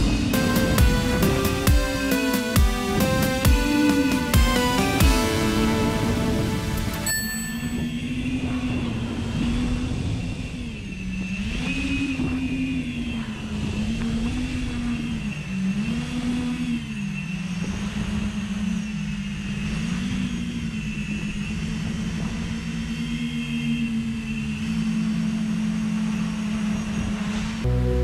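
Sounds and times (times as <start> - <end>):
drone motors whining: 0.0 - 7.0, 7.8 - 28.0
low rumble: 27.2 - 28.0.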